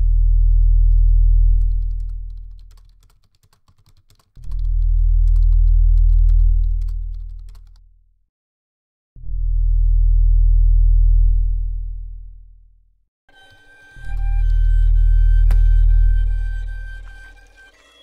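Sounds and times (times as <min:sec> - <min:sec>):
deep droning synthesizer tone: 0:00.0 - 0:01.8, 0:09.3 - 0:12.4, 0:13.3 - 0:18.0
typing on laptop keyboard: 0:00.4 - 0:07.8.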